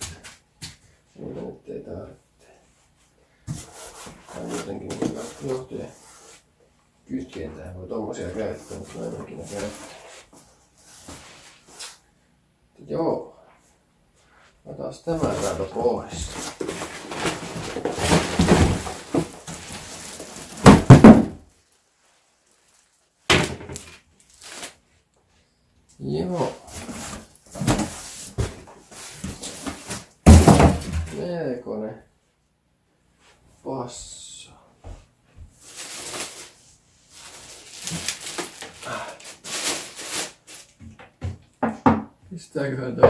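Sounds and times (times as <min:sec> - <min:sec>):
cardboard and plastic rustling: 0:03.5 - 0:06.4, 0:08.2 - 0:12.0, 0:15.1 - 0:24.9, 0:26.2 - 0:31.2, 0:35.5 - 0:41.3.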